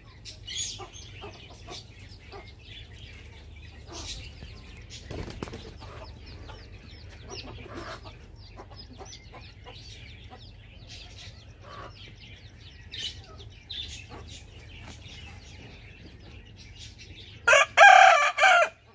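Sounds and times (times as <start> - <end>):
rooster crowing: 17.5 - 18.9.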